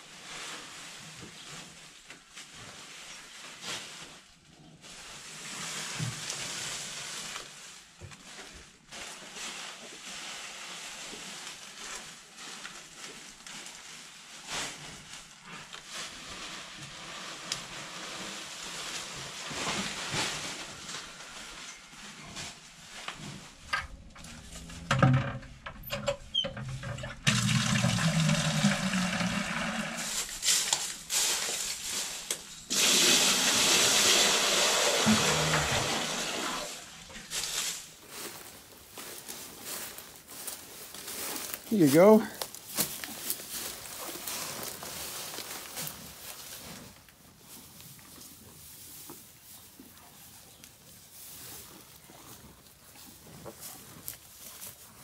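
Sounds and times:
dry stalks rustling and crackling: 0.0 - 55.0
water running into plastic bucket: 24.8 - 30.8, 32.7 - 37.2.

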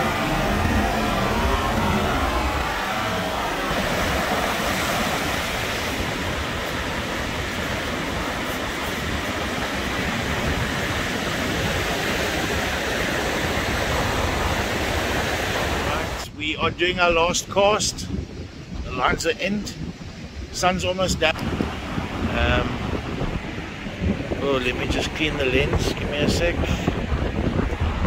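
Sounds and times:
surf breaking on beach: 0.0 - 16.2
wind rumbling on microphone: 0.0 - 28.0.

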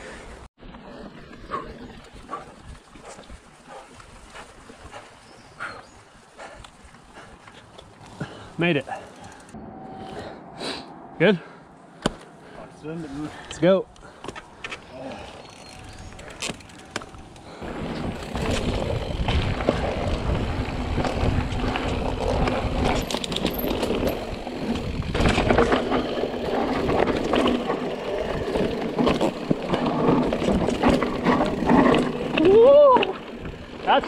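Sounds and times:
bike tyres rolling over dirt: 13.4 - 34.0
bike rattling and knocking: 14.1 - 34.0
wind buffeting microphone: 17.0 - 30.9.

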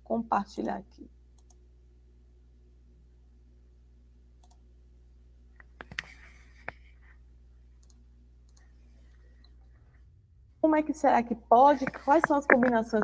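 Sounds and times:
faint low hum: 0.0 - 13.0
computer clicks: 1.4 - 1.6, 4.4 - 4.6, 7.8 - 8.7.

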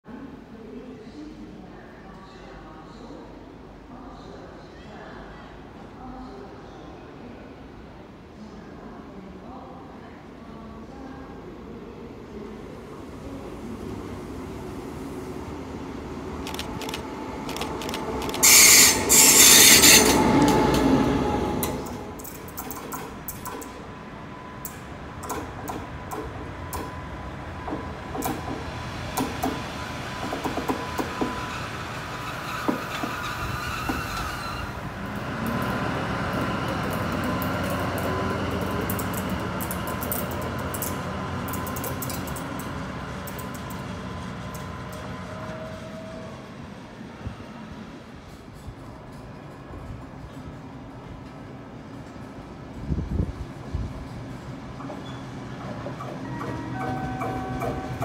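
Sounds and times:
diesel locomotive engine: 12.5 - 58.0.

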